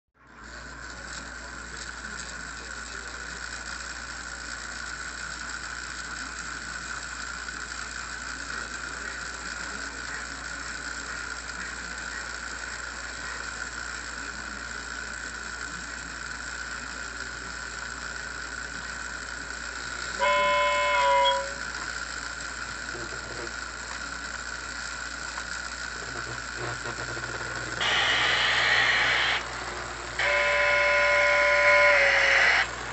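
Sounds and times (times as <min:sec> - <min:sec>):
model train steam hiss: 0:01.3 - 0:22.9, 0:27.8 - 0:32.9
steam whistle: 0:20.2 - 0:21.6, 0:30.2 - 0:32.7.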